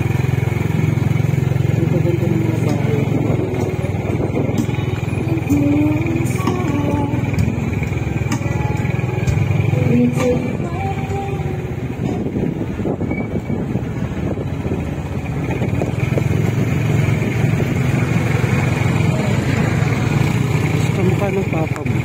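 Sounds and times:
road noise: 0.0s - 22.0s
vehicle engine running: 0.0s - 22.0s
wind noise: 2.8s - 5.0s, 11.7s - 17.8s.

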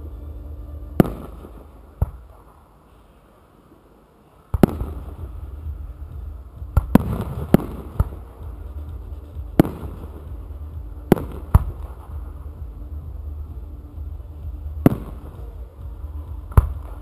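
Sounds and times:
steady low rumble: 0.0s - 3.2s, 4.6s - 17.0s.

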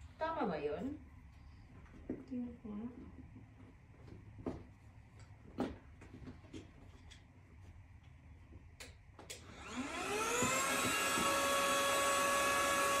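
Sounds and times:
electric air pump whining: 9.4s - 13.0s.

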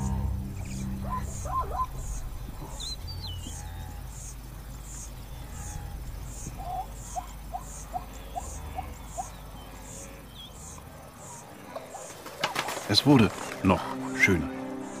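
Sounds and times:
low rumble: 0.0s - 6.7s.

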